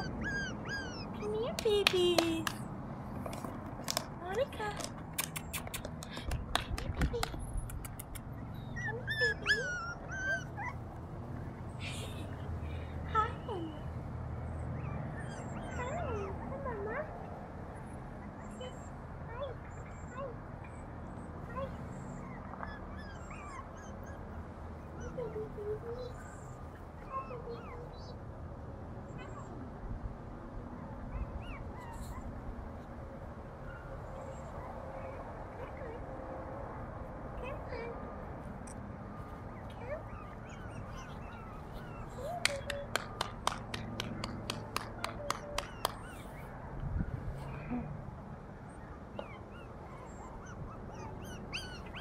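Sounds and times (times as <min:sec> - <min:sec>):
puppy wavering whine: 0:00.0 - 0:01.3, 0:08.5 - 0:10.8, 0:48.7 - 0:52.0
puppies whimpering: 0:00.0 - 0:01.6, 0:08.2 - 0:10.9, 0:14.5 - 0:16.5, 0:21.6 - 0:28.1, 0:31.1 - 0:32.5, 0:39.4 - 0:43.0, 0:45.1 - 0:46.4, 0:48.7 - 0:52.0
fingers snapping: 0:05.1 - 0:08.3, 0:42.4 - 0:46.0.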